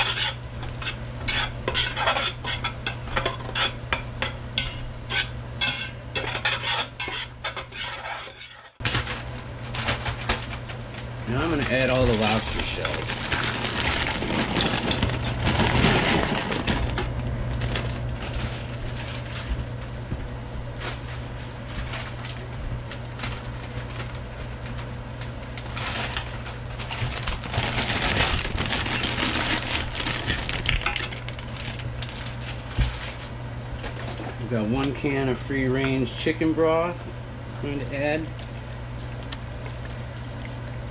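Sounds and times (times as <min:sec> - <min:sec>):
plastic bag crinkling: 0:11.3 - 0:17.0, 0:17.6 - 0:19.6, 0:25.6 - 0:33.3.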